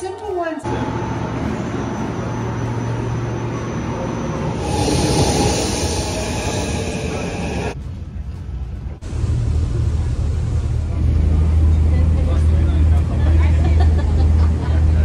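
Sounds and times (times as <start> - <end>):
metro train rumble and hum: 0.0 - 15.0
train rushing past with hiss: 0.7 - 8.2.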